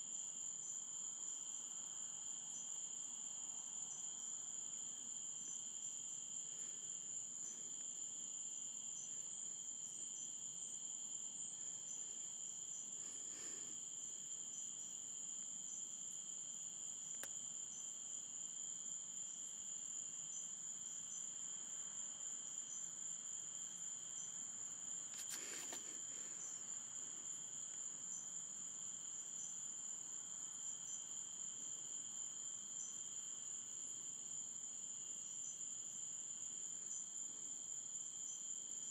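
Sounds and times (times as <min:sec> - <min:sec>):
night insects chorus: 0:00.0 - 0:38.9
brief rustles: 0:25.1 - 0:26.1.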